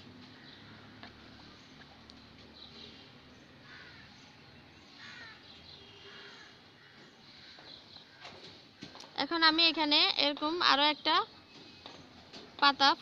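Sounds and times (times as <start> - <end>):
faint bird calls: 2.6 - 9.0.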